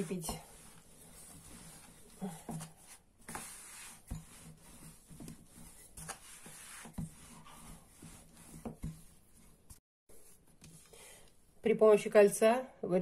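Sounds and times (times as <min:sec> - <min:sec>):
rolling pin rolling dough: 0:00.0 - 0:10.8.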